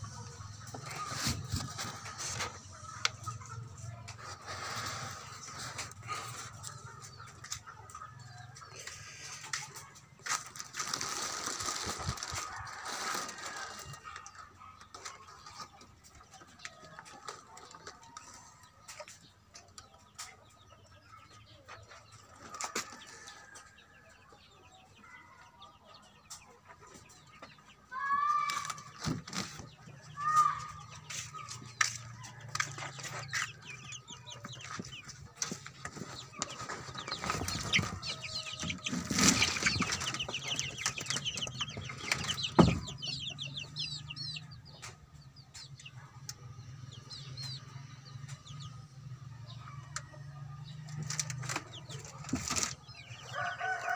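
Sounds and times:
chicks peeping and chirping: 0.0s - 53.9s
rustling and bumps: 31.1s - 44.2s.

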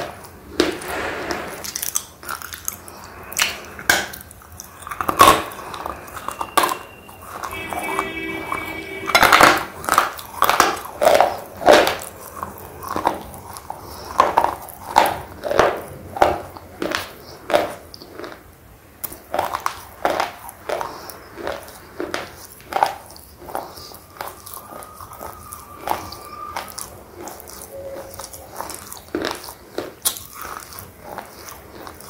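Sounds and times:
slate pencil being chewed: 19.0s - 32.0s.

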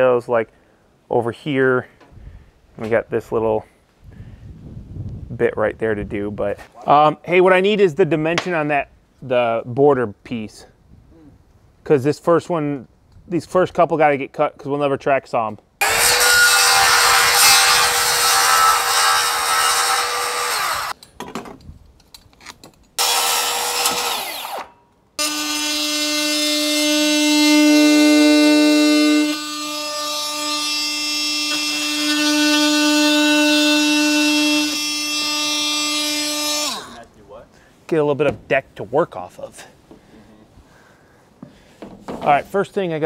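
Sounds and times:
circular saw cutting deck board: 15.8s - 21.0s, 23.0s - 37.0s.

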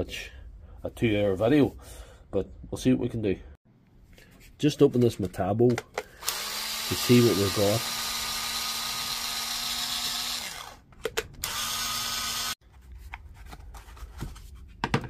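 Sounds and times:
cordless drill running: 6.2s - 10.8s, 11.4s - 12.6s.

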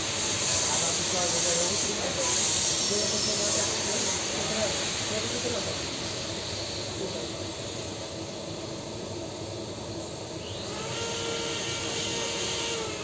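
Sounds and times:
welding arc hissing: 0.0s - 7.7s
faint multi-tone whine: 5.1s - 13.0s.

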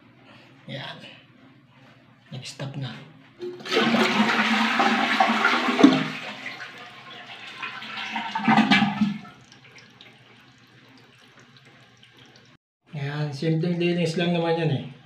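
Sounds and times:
toilet flushing: 3.4s - 12.6s.

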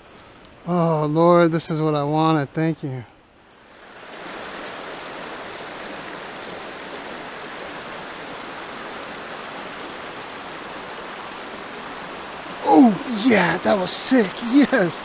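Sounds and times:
water rushing over rocks: 3.8s - 15.0s.

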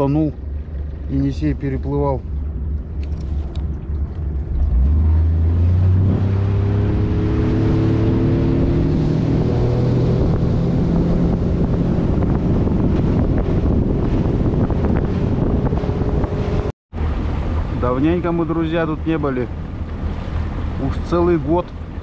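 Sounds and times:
outboard motor running: 0.0s - 22.0s
wind noise on microphone: 2.2s - 18.4s.

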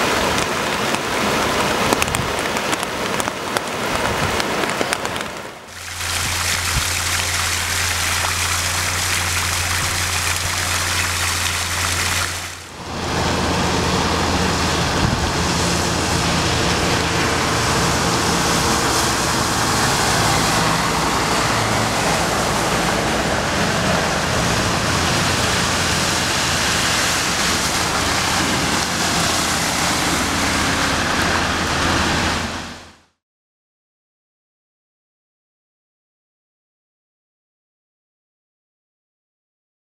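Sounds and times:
floodwater rushing: 0.0s - 33.0s
tyres splashing through water: 0.0s - 33.0s
water gushing from storm drains: 0.0s - 33.1s
heavy truck engine: 5.5s - 33.1s.

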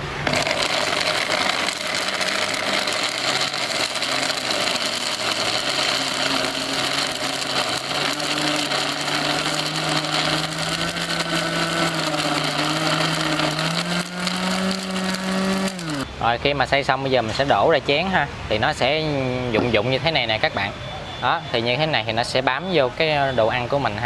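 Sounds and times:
blender motor grinding: 0.0s - 16.1s.

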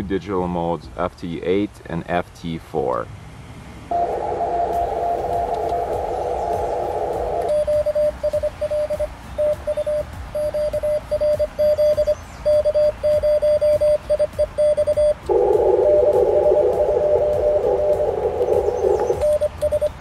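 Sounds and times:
radio band hiss: 3.9s - 8.2s, 15.2s - 19.3s
morse code sidetone: 3.9s - 20.0s.

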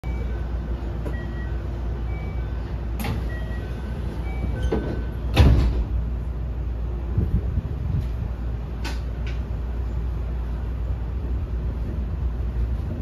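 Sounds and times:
sliding doors clacking: 2.9s - 6.1s.

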